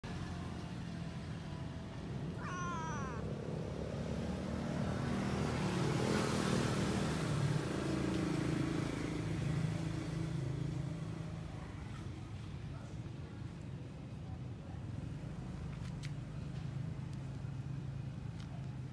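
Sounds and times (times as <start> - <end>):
cat meowing: 2.3 - 3.3.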